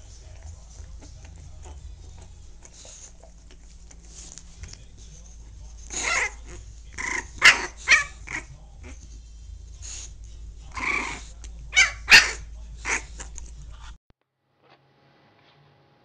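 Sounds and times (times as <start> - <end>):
puppy barking: 5.9 - 9.0, 10.7 - 13.5.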